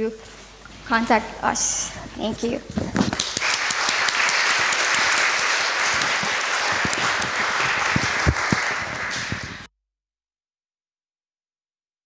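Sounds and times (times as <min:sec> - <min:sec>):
audience clapping: 0:02.9 - 0:09.7.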